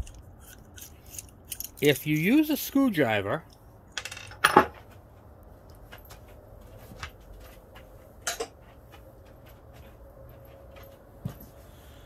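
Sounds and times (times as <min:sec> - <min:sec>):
small metal clicks: 0:00.0 - 0:01.9.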